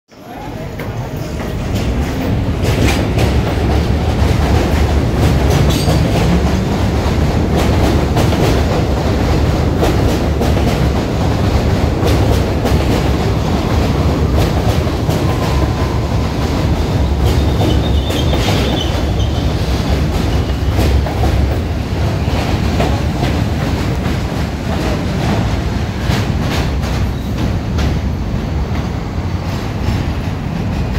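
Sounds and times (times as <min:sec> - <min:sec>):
subway train motors whining: 0:00.2 - 0:30.9
high wheel squeal: 0:15.2 - 0:19.8.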